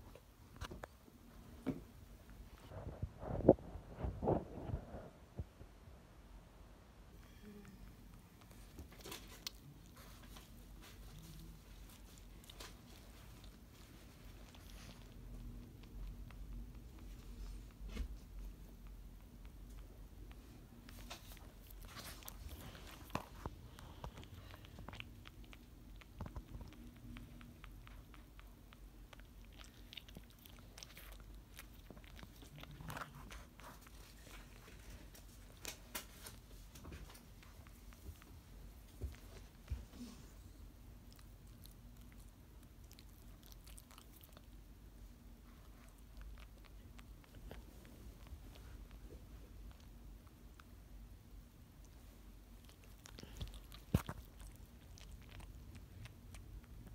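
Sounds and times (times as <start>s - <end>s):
dog chewing with mouth clicks: 8.1s - 56.9s
dog gnawing with teeth clicks: 52.6s - 56.9s.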